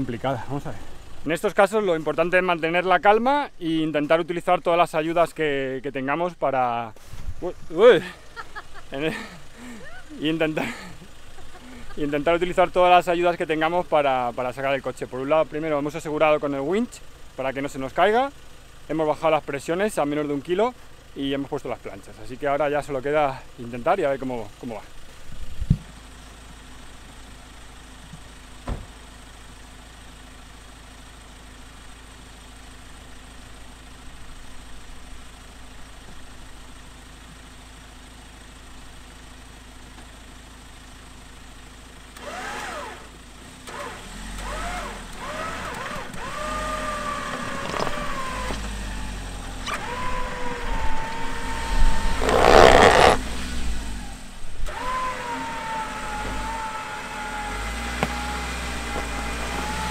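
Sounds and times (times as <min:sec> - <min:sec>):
truck engine starting and revving: 0:07.7 - 0:16.9, 0:42.1 - 0:59.9.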